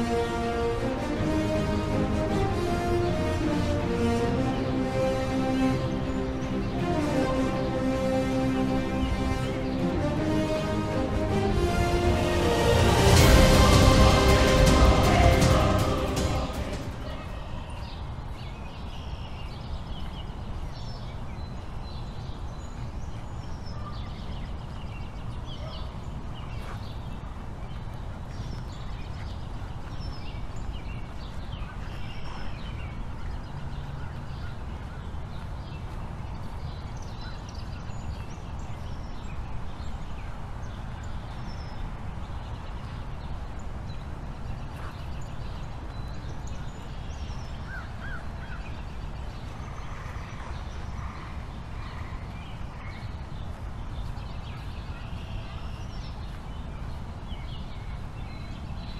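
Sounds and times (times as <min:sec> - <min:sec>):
small birds chirping: 0:17.0 - 0:58.9.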